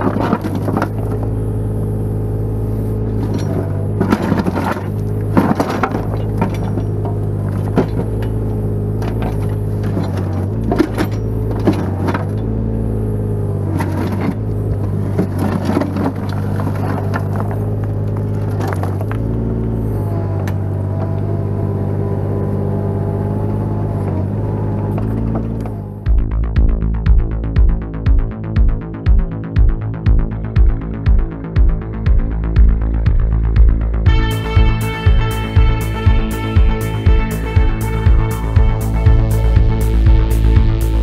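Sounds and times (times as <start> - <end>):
bucket scraping and knocking stones: 0.0 - 1.3, 3.2 - 8.4, 9.0 - 12.4, 13.8 - 19.3
excavator diesel engine running: 0.0 - 41.0.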